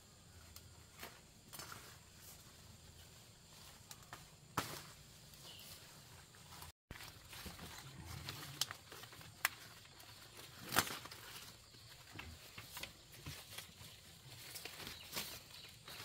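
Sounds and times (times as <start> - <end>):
foliage rustling: 0.9 - 16.0
leaf stems snapping: 8.2 - 11.5.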